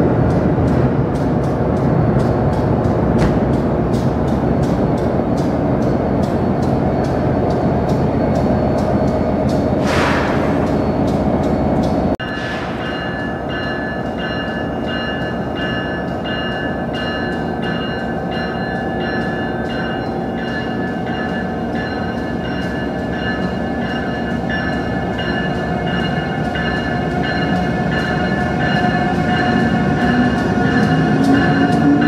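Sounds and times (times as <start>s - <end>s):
electric locomotive running: 0.0s - 32.0s
train passing: 0.0s - 32.0s.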